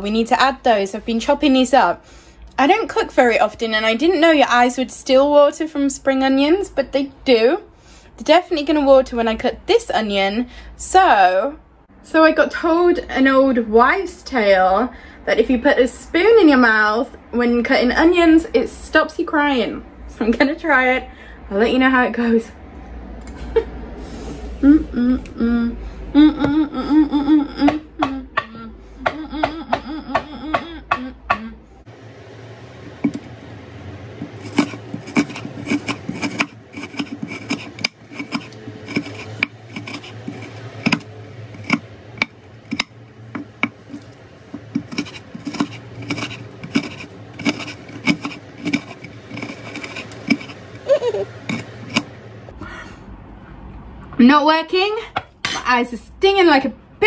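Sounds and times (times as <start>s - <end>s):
knife chopping on cutting board: 34.2s - 50.6s.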